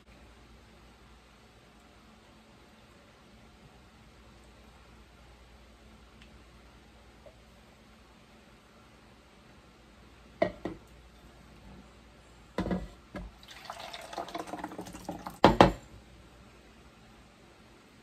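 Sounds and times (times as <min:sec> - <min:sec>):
batter pouring: 0:13.3 - 0:15.6.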